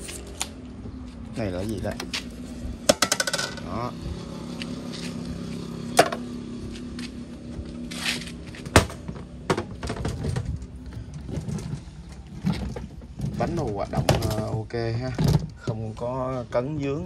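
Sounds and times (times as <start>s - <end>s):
trolley knocking and rattling: 1.6s - 3.7s, 8.0s - 16.0s.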